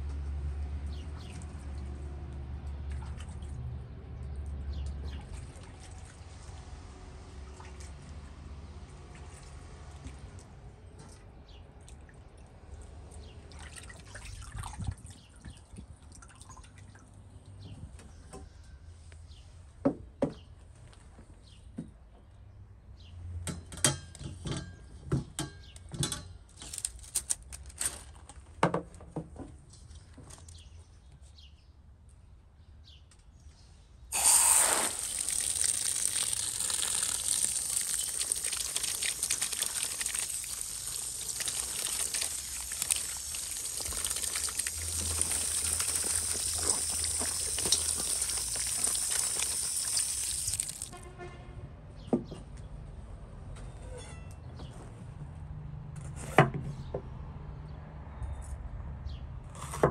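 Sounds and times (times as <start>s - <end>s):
tap water gushing onto vegetables: 34.1s - 51.0s.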